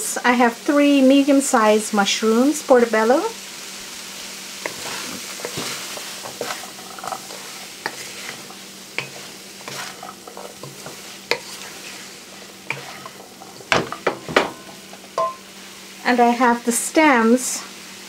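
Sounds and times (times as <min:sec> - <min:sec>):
frying sizzle: 0:00.0 - 0:18.0
spoon scraping metal pot: 0:04.6 - 0:13.7.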